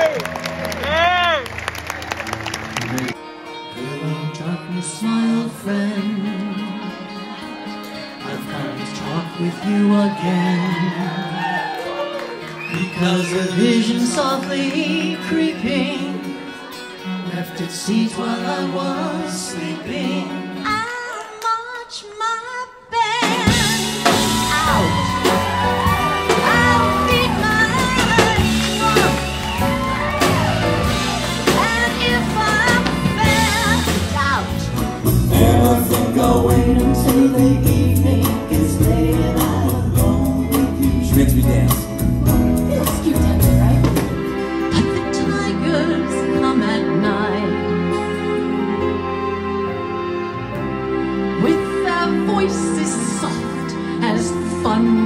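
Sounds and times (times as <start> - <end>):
live band playing: 0.0 - 21.6, 22.8 - 55.0
woman singing lead vocal: 12.9 - 16.6, 17.3 - 25.2, 31.4 - 41.8, 44.7 - 48.4, 51.4 - 55.0.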